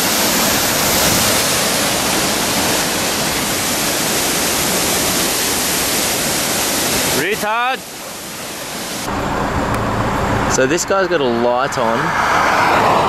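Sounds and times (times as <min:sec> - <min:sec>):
stream tumbling over boulders: 0:00.0 - 0:09.1
waterfall rushing: 0:00.0 - 0:09.1.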